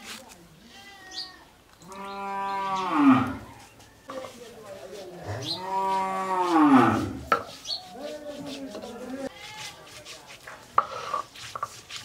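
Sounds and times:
cow mooing: 5.3 - 7.2.

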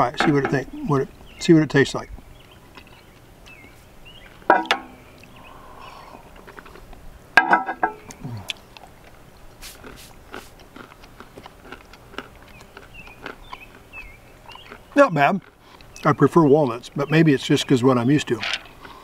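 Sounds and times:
person chewing with crunching: 5.2 - 7.0, 8.0 - 16.2, 18.7 - 19.0
throaty mm sounds: 7.8 - 9.0.

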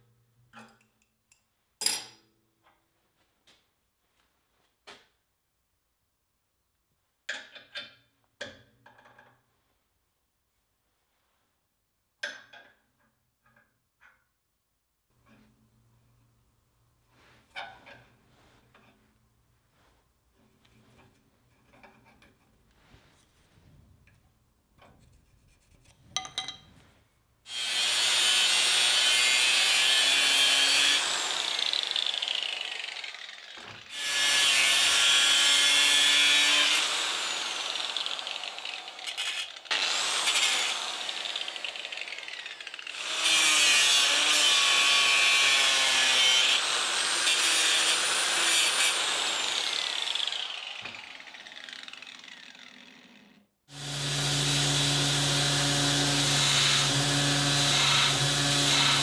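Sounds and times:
angle grinder grinding steel: 27.5 - 59.0
belt grinder humming: 27.5 - 59.0.

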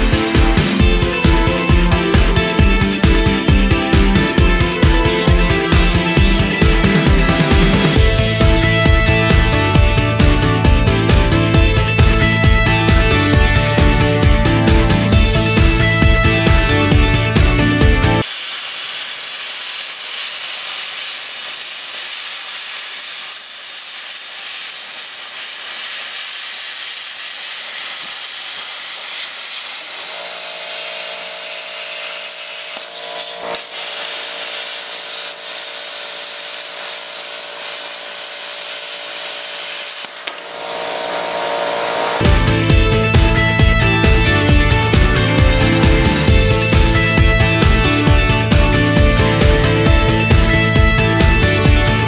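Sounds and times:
plasma cutter air hiss: 18.2 - 42.2
humming whine: 40.0 - 42.4.

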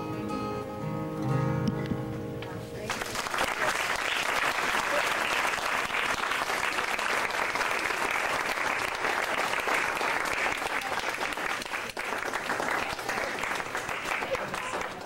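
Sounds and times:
guests clapping: 2.9 - 15.0.

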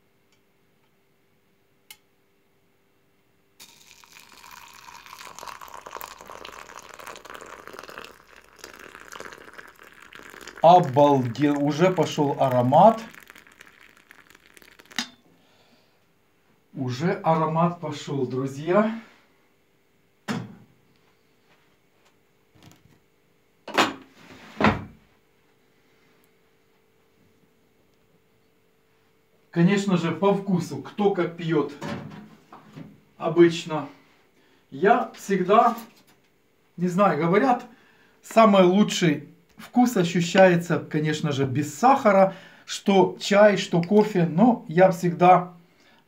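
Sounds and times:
faint steady hum: 0.0 - 23.6, 32.4 - 46.0
water poured into mug: 3.6 - 15.2.

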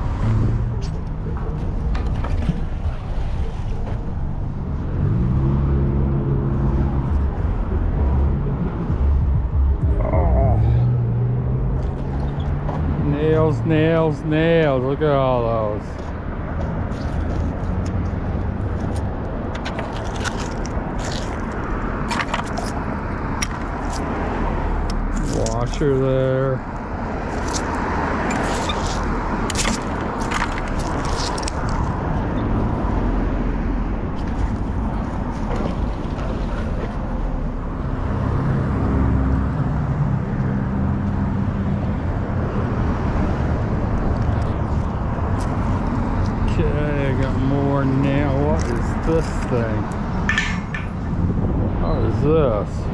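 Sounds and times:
road traffic rumble: 0.0 - 52.9
vehicle passing: 2.7 - 19.4
metal clicks and scrapes: 18.8 - 22.8, 49.4 - 51.0.

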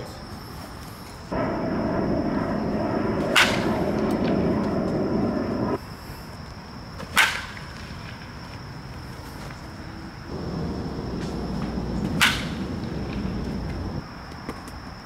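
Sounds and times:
steady rushing noise: 1.3 - 5.8, 10.3 - 14.0
baseball bat cracking ball: 11.1 - 13.8.

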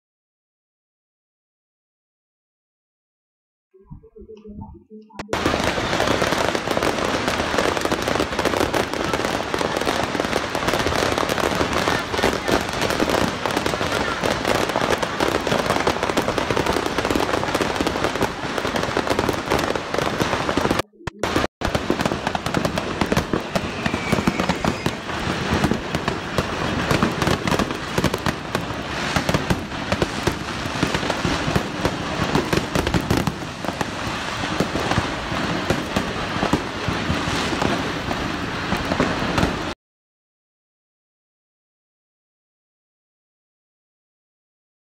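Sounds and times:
fireworks crackling and banging: 5.2 - 39.8.

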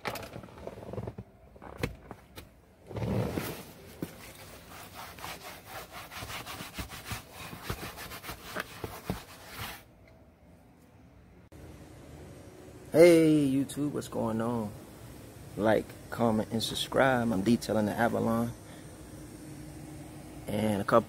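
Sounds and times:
cloth rubbing on leather seat: 2.9 - 9.8.

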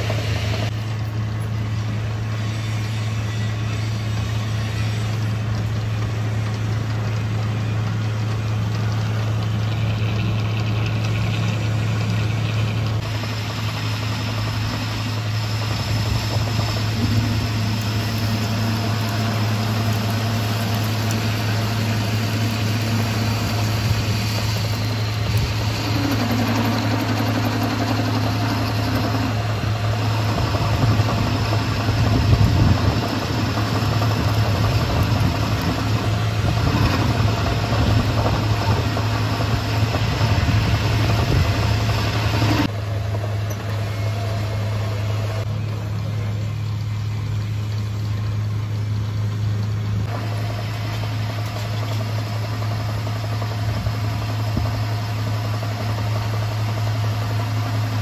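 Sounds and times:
lathe motor humming: 0.0 - 46.3.

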